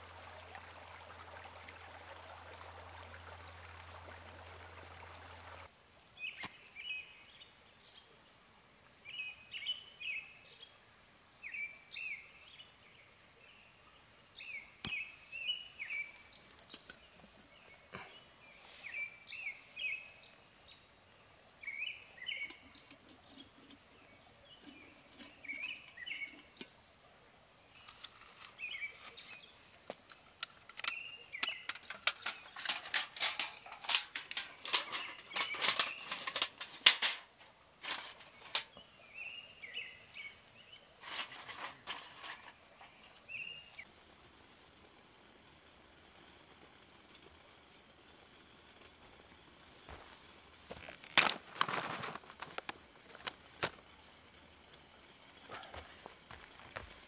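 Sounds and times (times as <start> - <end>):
songbird chirping: 0.6 - 8.4, 9.0 - 10.8, 11.4 - 43.9.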